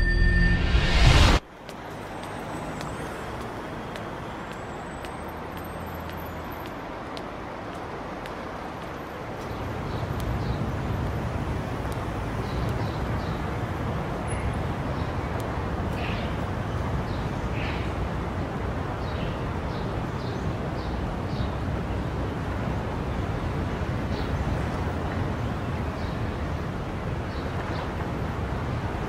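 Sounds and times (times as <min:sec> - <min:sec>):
faint high chirps: 0:00.0 - 0:01.4
distant traffic hum: 0:00.9 - 0:29.0.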